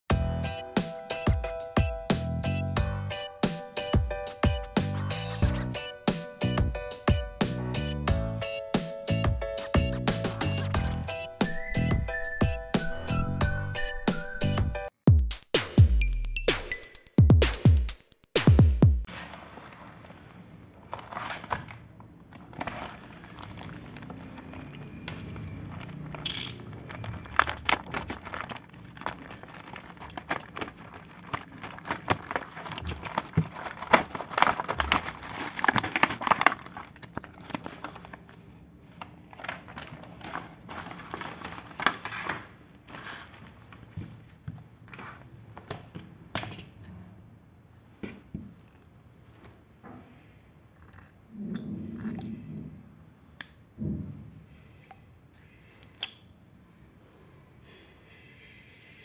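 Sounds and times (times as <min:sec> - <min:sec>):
plastic packaging crinkling and tearing: 0:20.8 - 0:25.0, 0:25.6 - 0:43.9.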